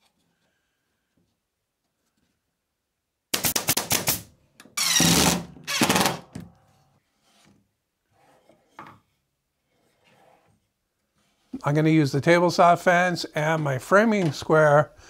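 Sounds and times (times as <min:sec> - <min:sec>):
power driver driving screws: 0:04.8 - 0:06.2.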